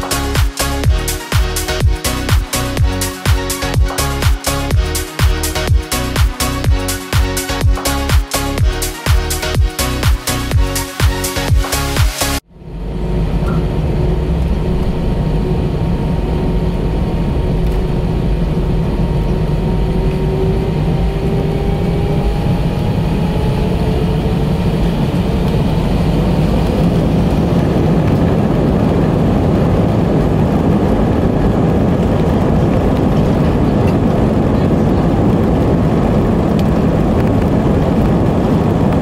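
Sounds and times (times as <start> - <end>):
aircraft engines rumbling: 0.0 - 39.0
faint rising whine: 12.4 - 33.4.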